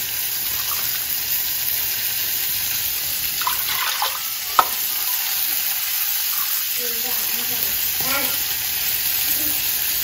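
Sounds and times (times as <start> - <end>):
water pouring splash: 3.4 - 5.2.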